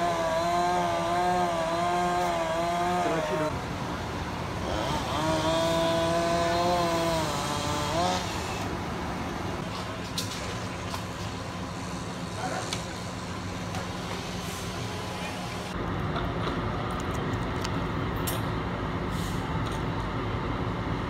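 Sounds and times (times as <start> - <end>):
small engine revving: 0.0 - 3.6, 4.6 - 8.8.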